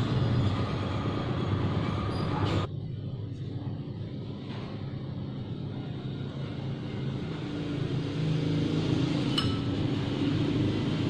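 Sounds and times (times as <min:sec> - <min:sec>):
metal spoon clinking on bowl: 0:09.3 - 0:09.9.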